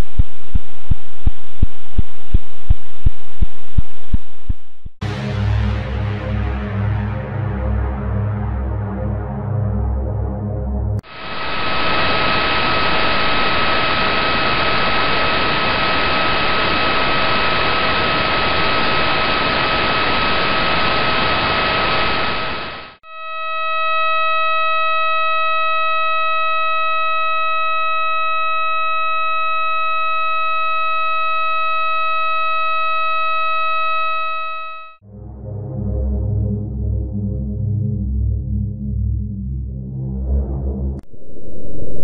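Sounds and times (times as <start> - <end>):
steady buzzing tone: 11.0 - 35.0
loud hiss with steady high tone: 11.1 - 25.6.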